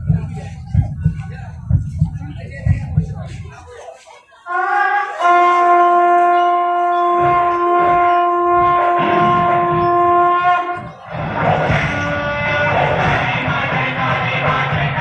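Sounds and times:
low drum beats: 0:00.0 - 0:03.9, 0:04.8 - 0:15.0
long horn note: 0:04.5 - 0:10.9
music: 0:10.6 - 0:15.0.

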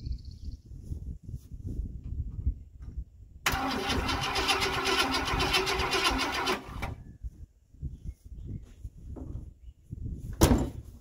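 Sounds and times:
starter motor cranking engine: 0:03.5 - 0:07.0.

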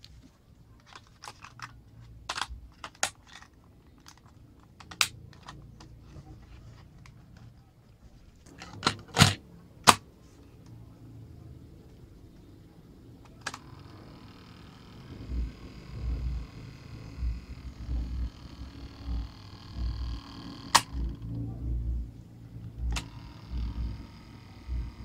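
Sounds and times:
plastic clicks and taps: 0:00.8 - 0:06.0, 0:13.2 - 0:13.6.

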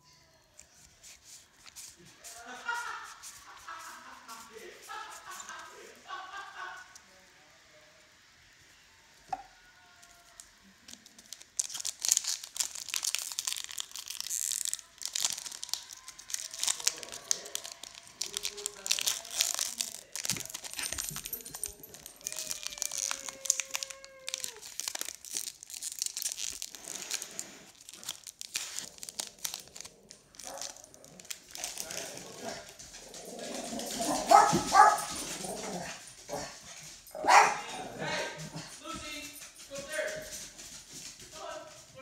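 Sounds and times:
foil wrapper crinkling and tearing: 0:01.0 - 0:05.6, 0:10.3 - 0:36.0.

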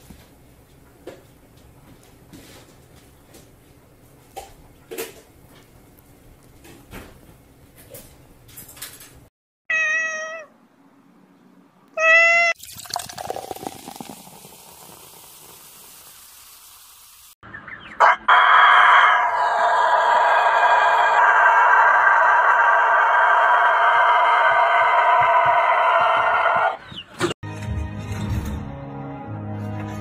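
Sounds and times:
cats meowing: 0:09.7 - 0:10.5, 0:12.0 - 0:12.6
faucet running water: 0:12.6 - 0:17.4.

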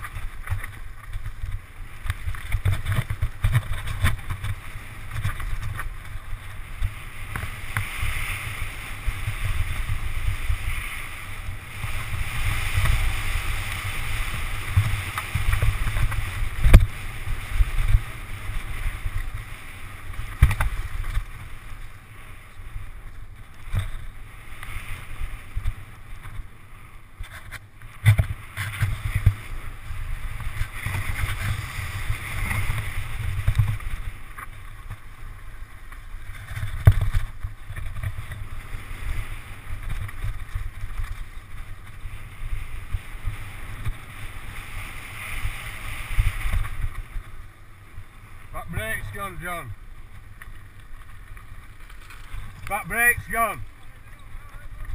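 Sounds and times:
wind buffeting microphone: 0:00.0 - 0:21.9
bike rattling: 0:00.0 - 0:54.9
bike tyres rolling over gravel: 0:00.0 - 0:54.9.

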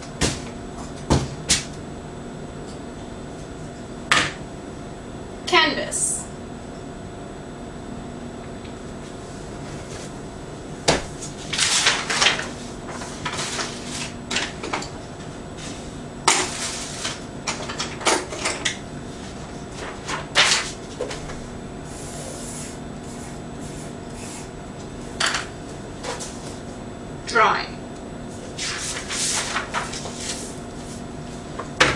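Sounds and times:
faint steady hum: 0:00.0 - 0:31.9
sketchbook pages rustling: 0:28.5 - 0:31.0.

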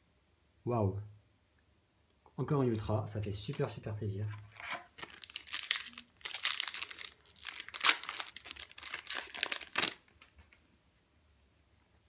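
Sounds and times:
foil wrapper crinkling: 0:04.5 - 0:10.7.

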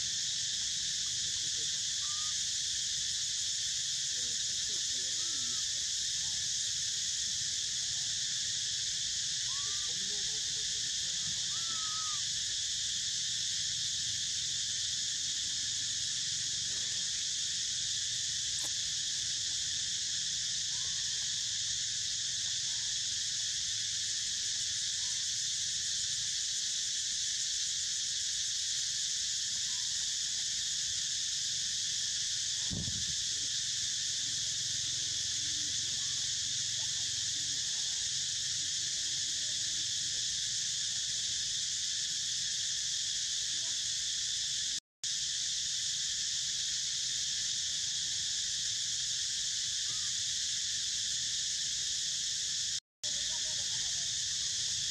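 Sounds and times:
high-pitched insect chorus: 0:00.0 - 0:54.9.

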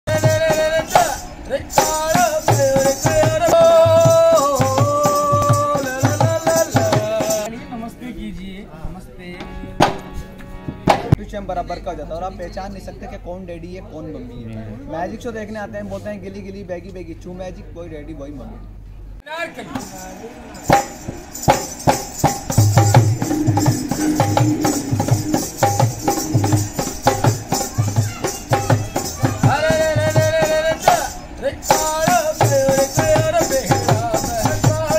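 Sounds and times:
folk singing: 0:00.1 - 0:07.5, 0:28.6 - 0:34.9
hand drum beat: 0:20.7 - 0:30.4.

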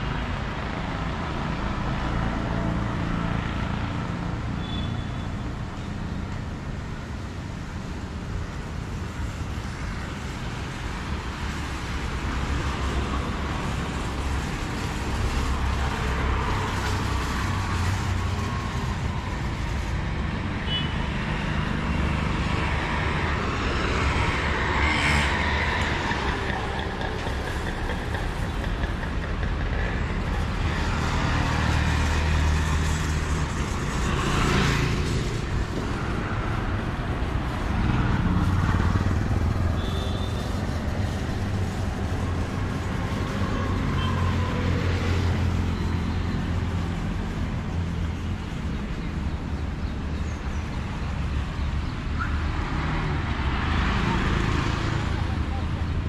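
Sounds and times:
vehicles passing on wet road: 0:00.0 - 0:56.0
tyres swishing on wet road: 0:09.7 - 0:20.3, 0:21.3 - 0:49.2.

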